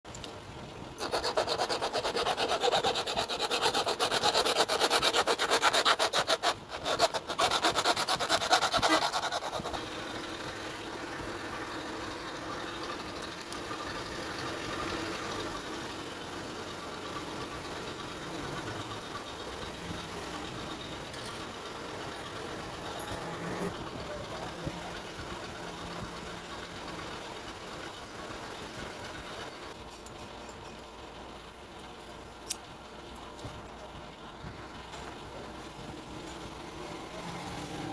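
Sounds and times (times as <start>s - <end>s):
plastic bottle being cut: 1.0s - 9.8s.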